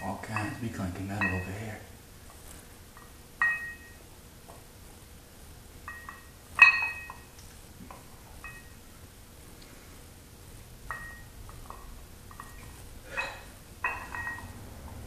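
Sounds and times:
dumbbell plates clinking: 0.0s - 1.7s, 3.0s - 4.0s, 5.8s - 7.3s, 7.9s - 8.8s, 10.9s - 14.6s.

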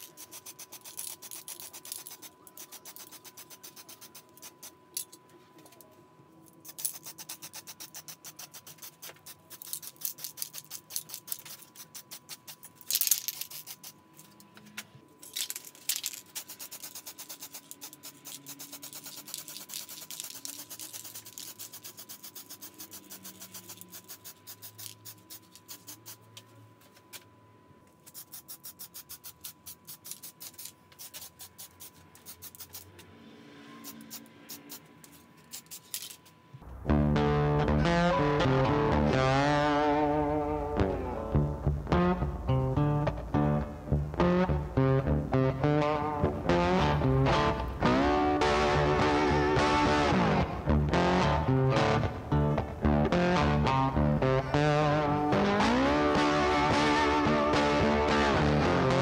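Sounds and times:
spray can hissing: 16.4s - 26.2s, 28.1s - 32.9s.

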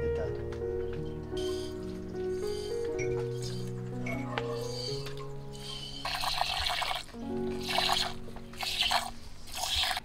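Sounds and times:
background music with held notes: 0.0s - 10.0s
milk squirting into a pot: 5.6s - 10.0s.

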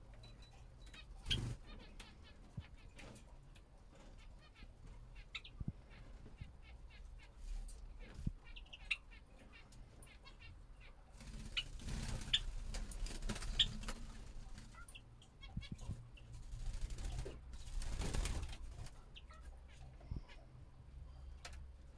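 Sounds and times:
finches chirping: 0.4s - 3.2s, 4.0s - 12.7s, 13.3s - 17.8s.

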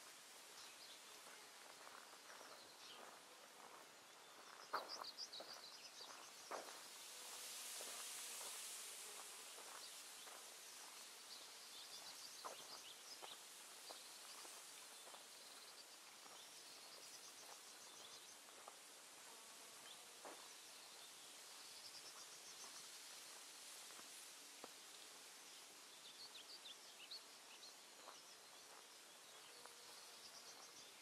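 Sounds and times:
faint background hiss: 0.0s - 31.0s.

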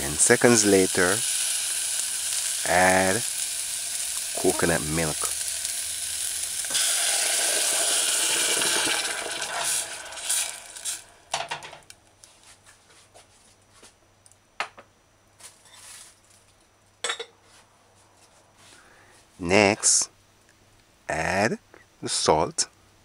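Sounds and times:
onions sizzling in hot oil: 0.0s - 11.8s
liquid pouring into pan: 0.8s - 11.4s.

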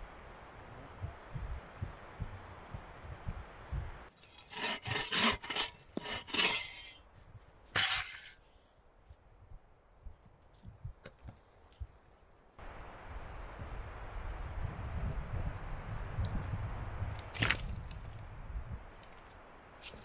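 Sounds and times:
wind rumbling on microphone: 0.0s - 4.1s, 9.1s - 20.0s
hand saw cutting wood: 4.2s - 7.0s.

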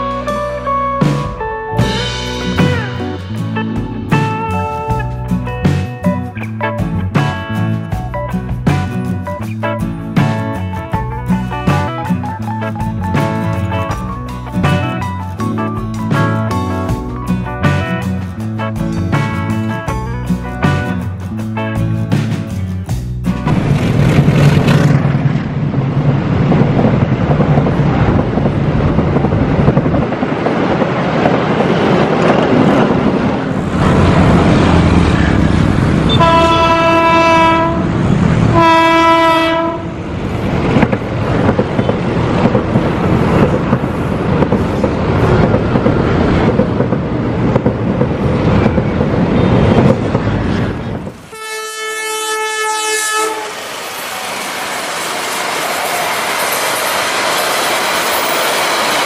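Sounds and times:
train wheel and track noise: 0.0s - 59.0s
horn of different pitch: 35.9s - 40.0s, 51.2s - 53.7s
train horn blasts: 36.0s - 40.0s, 51.2s - 53.7s.

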